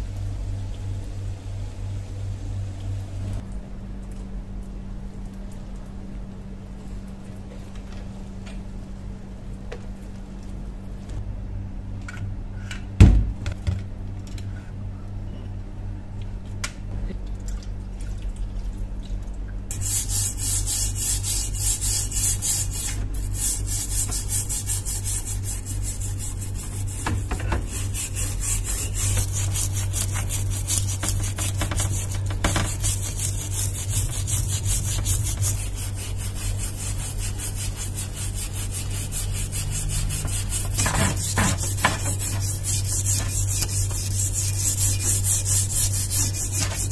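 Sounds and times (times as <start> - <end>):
brush scrubbing metal hammer head: 19.7 - 46.9.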